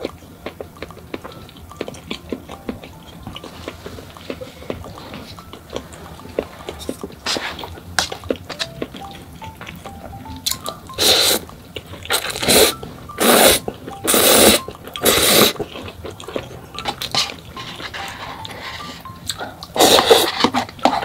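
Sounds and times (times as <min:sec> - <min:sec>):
slurping noodles: 0:11.0 - 0:11.4, 0:12.1 - 0:15.7, 0:19.7 - 0:21.0.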